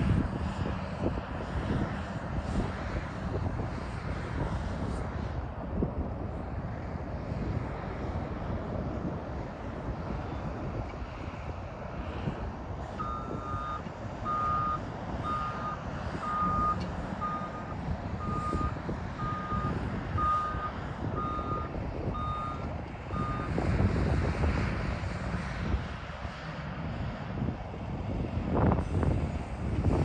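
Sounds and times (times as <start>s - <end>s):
diesel engine rumble: 0.0s - 30.0s
reversing alarm beeps: 13.0s - 23.6s.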